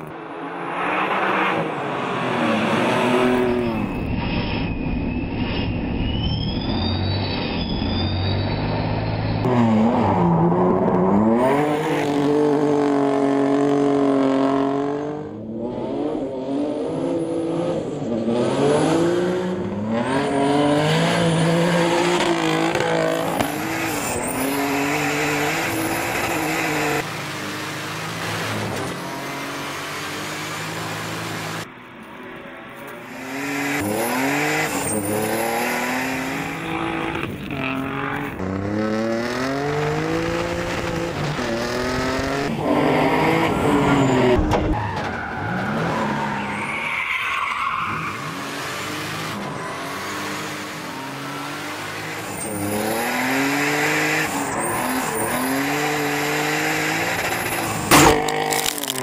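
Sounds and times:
race car engine revving: 6.1 - 31.7, 33.1 - 46.7, 47.7 - 59.0
tires on gravel: 18.3 - 59.0.

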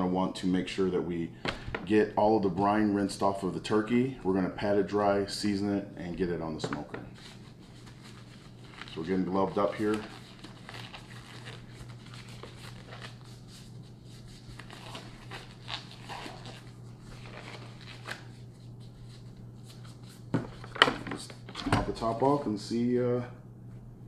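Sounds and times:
disposable gloves crinkling and snapping: 7.3 - 21.6.

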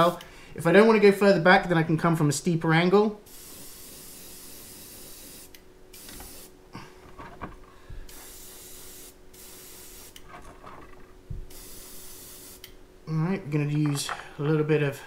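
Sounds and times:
airbrush spraying hiss: 3.2 - 6.6, 8.1 - 10.2, 11.5 - 12.7.

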